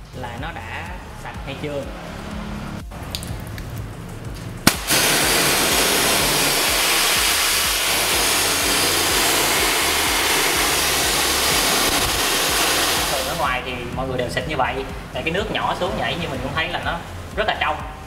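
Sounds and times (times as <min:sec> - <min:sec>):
water splashing on tile floor: 0:03.0 - 0:08.0
water spray hissing: 0:04.6 - 0:13.6.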